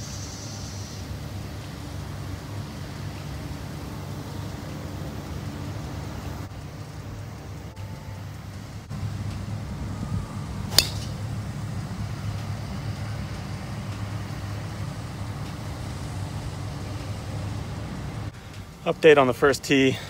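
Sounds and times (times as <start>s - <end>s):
steady low rumble: 0.0s - 20.0s
golf club striking ball: 10.6s - 11.3s.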